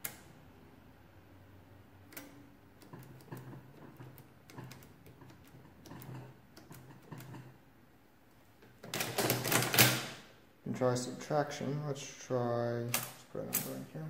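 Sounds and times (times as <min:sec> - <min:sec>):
adding machine keys clicking: 0:02.1 - 0:07.5, 0:08.7 - 0:10.2, 0:12.9 - 0:13.8.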